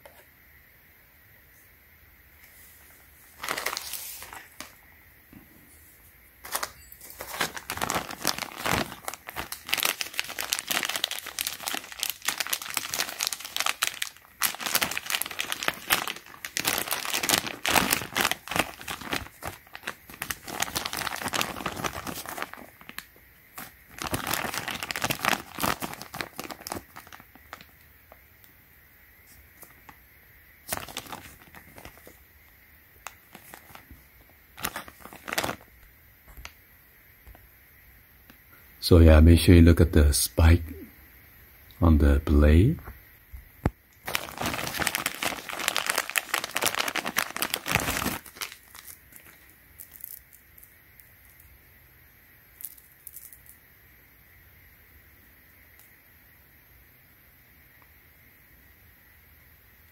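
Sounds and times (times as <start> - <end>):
plastic bag crinkling: 3.3 - 4.8, 6.4 - 27.8, 30.6 - 32.2, 33.0 - 36.5, 44.0 - 51.4.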